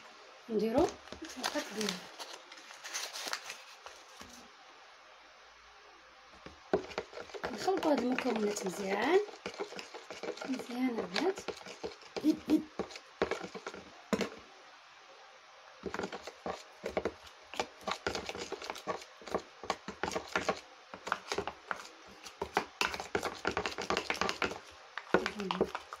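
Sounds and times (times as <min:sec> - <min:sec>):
metal spoon stirring paste: 0:06.4 - 0:14.4, 0:15.8 - 0:26.0
spoon scraping tub: 0:06.7 - 0:14.4, 0:15.8 - 0:26.0.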